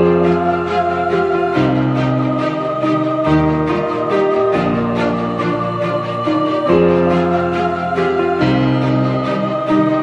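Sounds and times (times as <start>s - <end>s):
background music of held chords: 0.0s - 10.0s.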